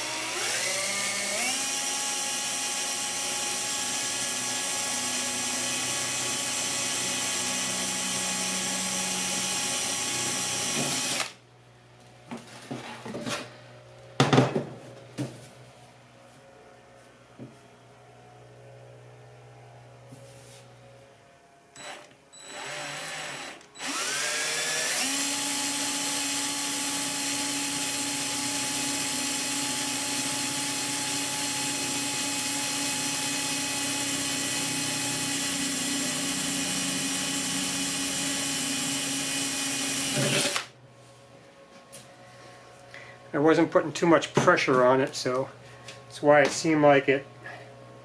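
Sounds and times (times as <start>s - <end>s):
power drill boring sheet metal: 0.0s - 11.4s, 21.8s - 40.7s.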